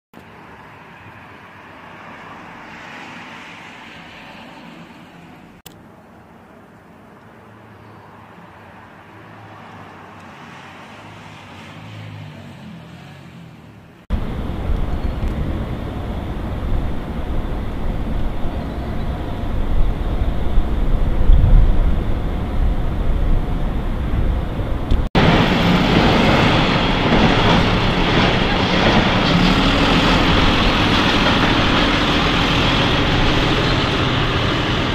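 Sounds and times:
quiet street ambience: 0.2s - 34.9s
loud steady rumbling: 14.1s - 34.9s.

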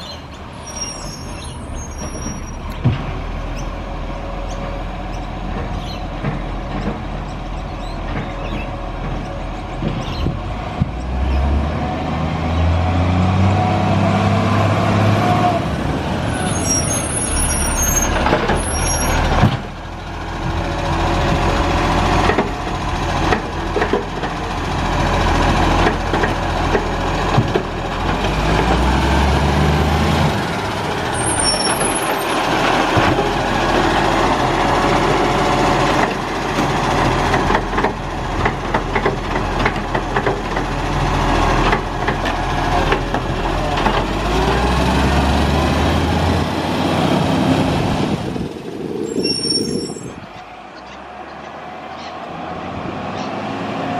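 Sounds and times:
diesel truck engine: 0.0s - 53.9s
clanks and knocks: 5.4s - 11.1s, 23.2s - 24.4s, 25.8s - 28.7s, 36.0s - 40.8s.

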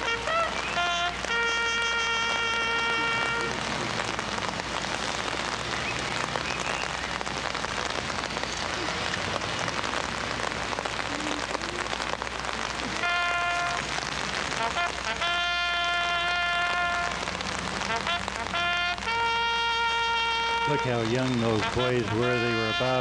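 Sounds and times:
wind instrument held notes: 0.0s - 4.0s, 13.0s - 17.2s, 17.8s - 23.0s
steady rain hissing: 0.0s - 23.0s.

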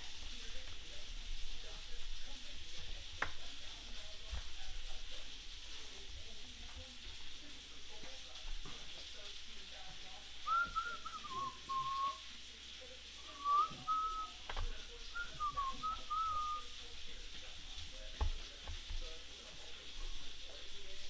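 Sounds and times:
person whistling a tune: 10.4s - 12.2s, 13.3s - 14.4s, 15.1s - 16.7s.

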